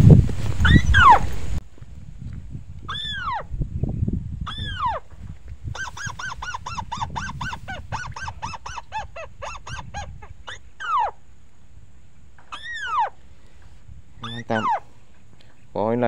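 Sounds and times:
crake calls from speaker: 0:14.2 - 0:14.9.

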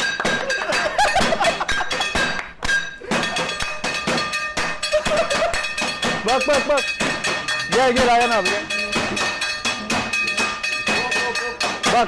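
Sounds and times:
plates knocking in rhythm: 0:00.0 - 0:12.0
rhythmic clapping: 0:00.0 - 0:12.0.

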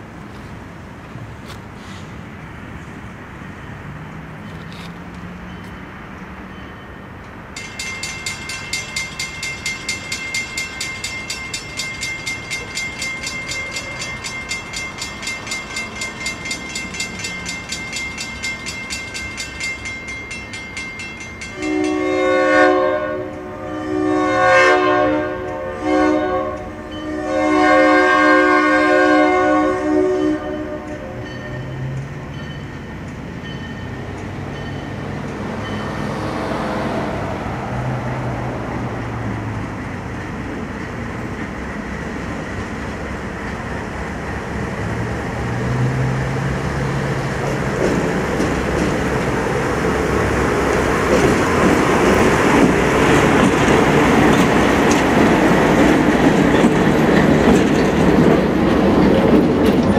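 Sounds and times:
crossing bell ringing: 0:05.3 - 0:36.5, 0:47.1 - 0:59.9
locomotive horn blasts: 0:21.5 - 0:31.7
locomotive engine rumble: 0:30.7 - 0:59.9.

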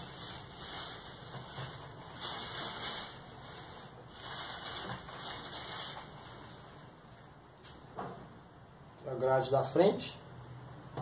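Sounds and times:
plastic bag rustling: 0:00.0 - 0:07.2.

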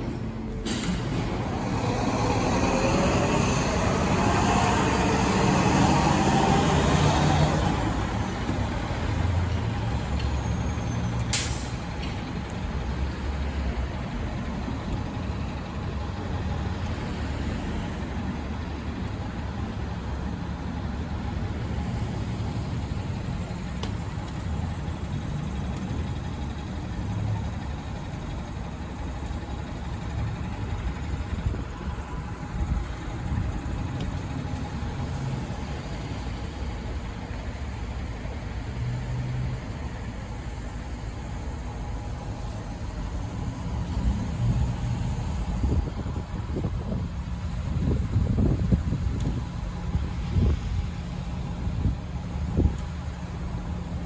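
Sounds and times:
bus engine driving past: 0:00.0 - 0:54.0
street traffic rumble: 0:00.0 - 0:54.0.

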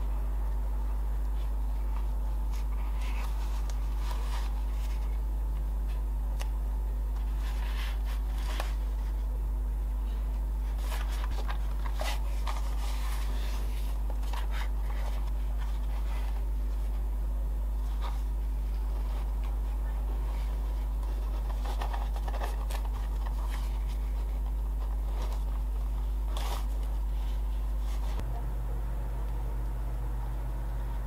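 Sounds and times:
low hum: 0:27.8 - 0:31.0.

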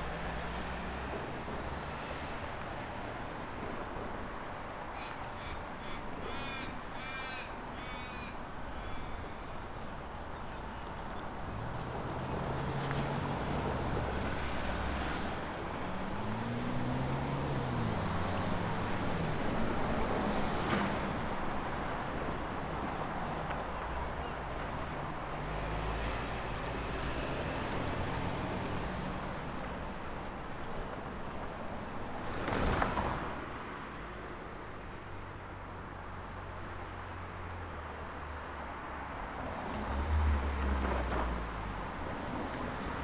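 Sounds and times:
cars passing: 0:11.4 - 0:43.0.

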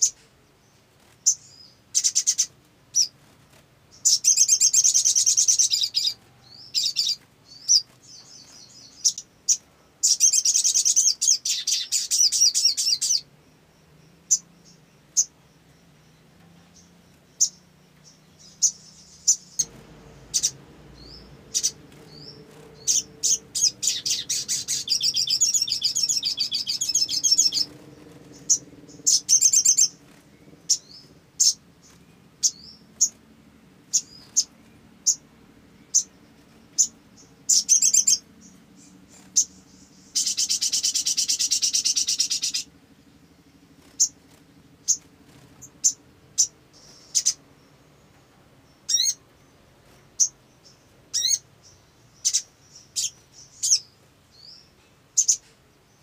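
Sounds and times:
bird trilling song: 0:00.0 - 0:56.0
sharp bird chips: 0:17.4 - 0:33.2.

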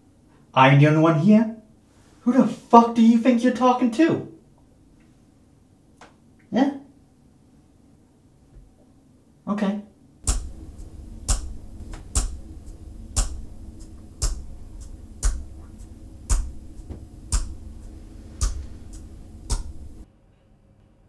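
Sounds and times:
low steady hum: 0:10.0 - 0:20.1
clock ticking: 0:10.2 - 0:20.0.

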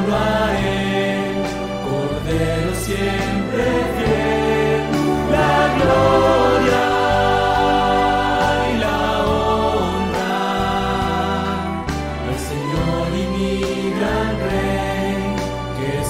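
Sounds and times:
choir singing a hymn: 0:00.0 - 0:16.0
low accompaniment: 0:01.6 - 0:10.1.

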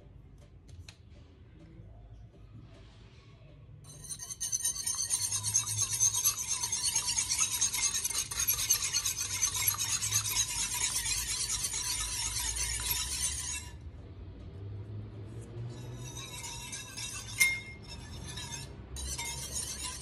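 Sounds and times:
whisk clinking against bowl: 0:03.9 - 0:13.7, 0:15.8 - 0:20.0.

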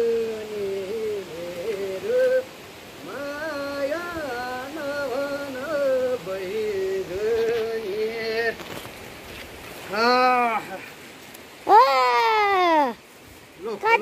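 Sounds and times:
person singing slow melody: 0:00.0 - 0:08.7.

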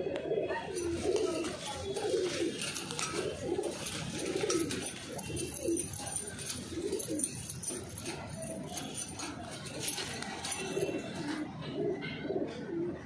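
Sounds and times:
pigeons cooing: 0:00.0 - 0:13.0.

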